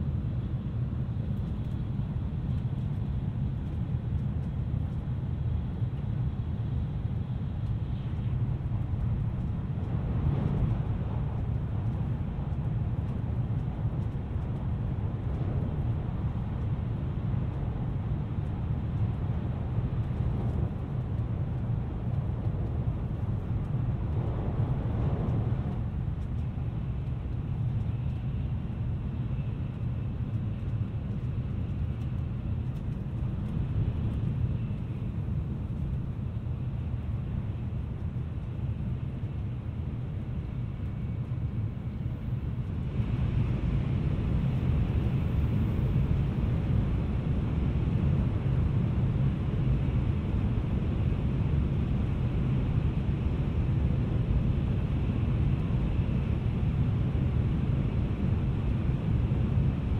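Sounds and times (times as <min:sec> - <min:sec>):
train wheels rumbling on rail: 0:01.0 - 0:47.2.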